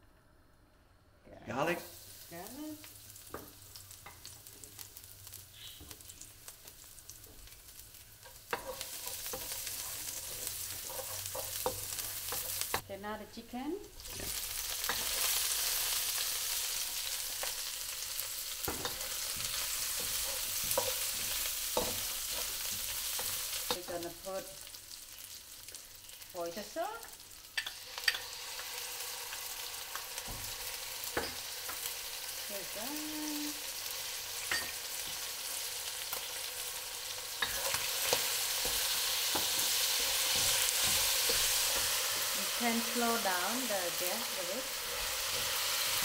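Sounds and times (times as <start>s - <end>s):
chicken sizzling in hot oil: 1.6s - 12.8s, 13.8s - 46.0s
wooden spatula scraping a wok: 8.2s - 12.8s, 18.2s - 23.8s.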